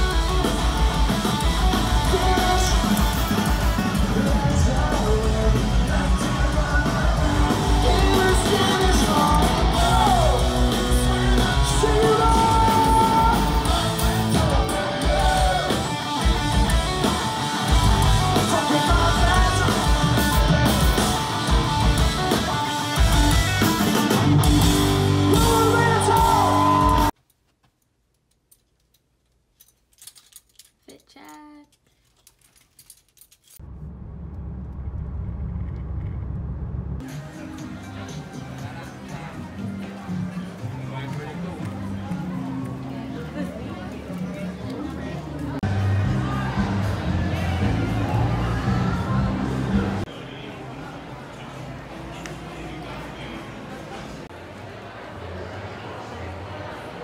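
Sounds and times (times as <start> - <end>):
electric guitar: 0.0 - 27.1
live rock band playing: 0.0 - 27.1
crowd yelling: 0.0 - 27.2, 45.4 - 51.0
person singing: 1.9 - 16.5, 18.2 - 21.3.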